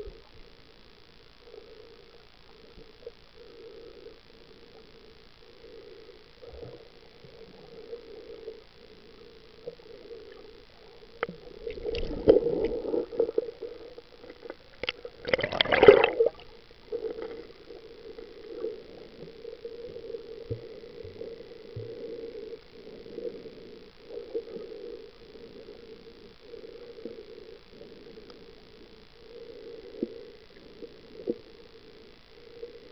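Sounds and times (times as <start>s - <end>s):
muffled underwater gurgling: 1.4s - 32.9s
water splashing: 14.2s - 16.5s.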